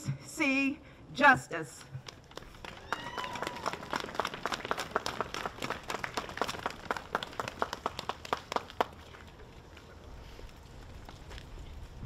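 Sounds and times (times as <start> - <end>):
crowd applauding: 2.0 - 9.2.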